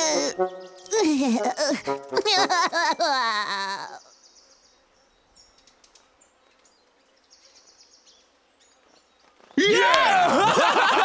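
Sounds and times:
cartoon characters laughing: 0.0 - 4.1, 9.6 - 11.0
faint bird chirps: 3.0 - 9.6.

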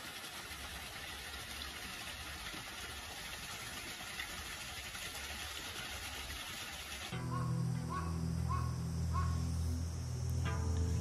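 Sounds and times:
waterfall splashing over rocks: 0.0 - 7.2.

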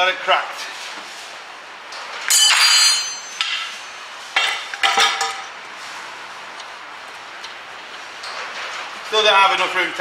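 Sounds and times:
steel tools clanking: 2.3 - 5.5.

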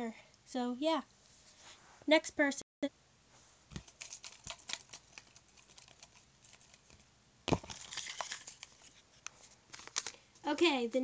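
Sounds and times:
paper slips rustling: 3.7 - 10.5.

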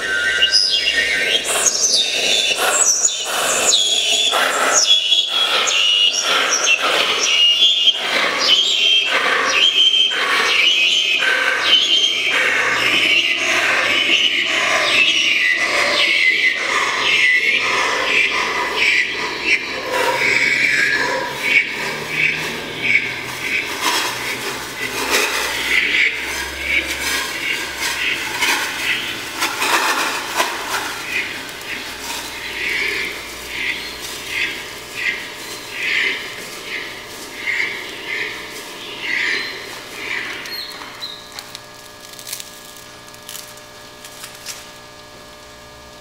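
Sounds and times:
liquid nitrogen hissing and sputtering: 19.8 - 46.0.

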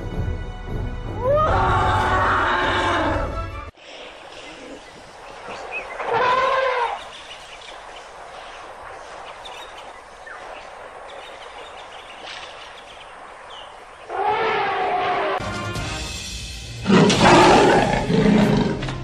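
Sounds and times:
outdoor hiss: 3.7 - 18.4
elephant trumpeting: 6.0 - 7.1, 14.1 - 15.6.

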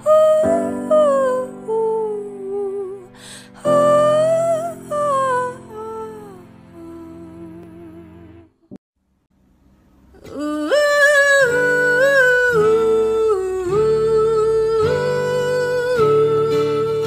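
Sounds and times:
woman singing wordless notes: 0.0 - 8.6, 10.2 - 17.0
quiet acoustic backing music: 10.0 - 17.0.

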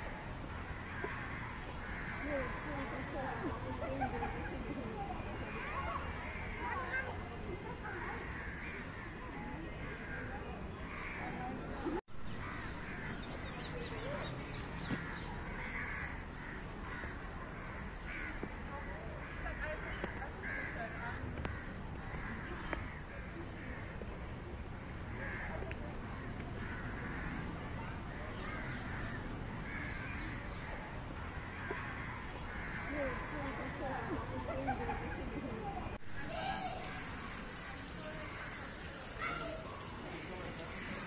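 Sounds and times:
steady background noise: 0.0 - 41.0
crows cawing: 0.6 - 3.3, 7.9 - 9.2, 10.9 - 11.4, 14.8 - 24.0, 24.9 - 27.4, 28.4 - 33.7, 36.2 - 41.0.

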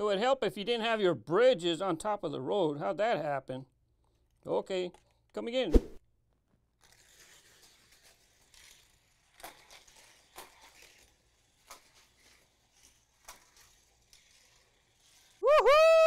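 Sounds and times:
toy car clacking on plastic track: 6.8 - 15.4.

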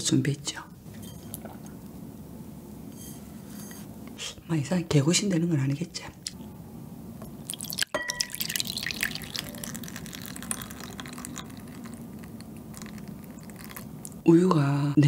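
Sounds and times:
milk pouring into glass bowl: 7.4 - 14.2.

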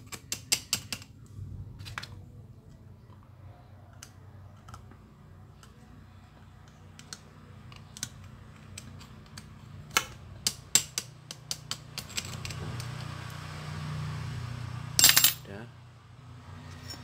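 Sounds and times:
low steady hum: 1.1 - 11.3
metal parts clinking: 10.4 - 12.6, 15.0 - 15.5.

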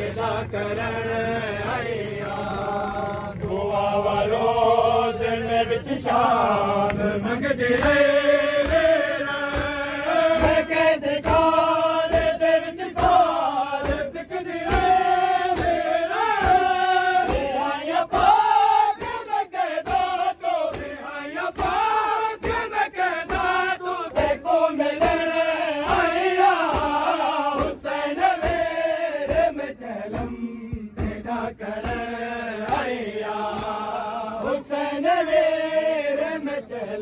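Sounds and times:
crowd of men chanting: 0.0 - 37.0
hands striking chests rhythmically: 6.1 - 36.7.

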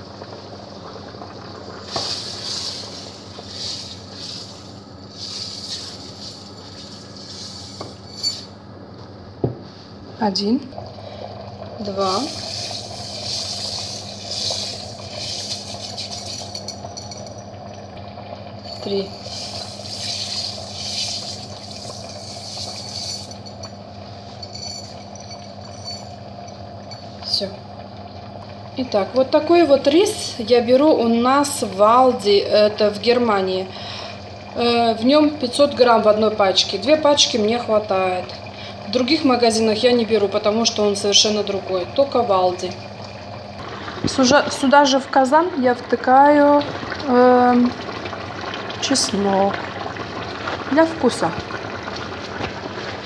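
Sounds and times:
water boiling: 0.0 - 53.0
rice grains pouring into water: 1.8 - 8.5, 12.0 - 17.0, 18.7 - 23.6.

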